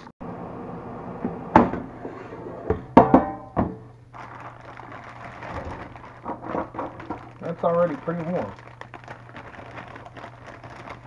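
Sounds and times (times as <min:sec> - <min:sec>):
air fryer fan humming: 0:00.2 - 0:11.0
air fryer basket clunking: 0:02.7 - 0:03.9.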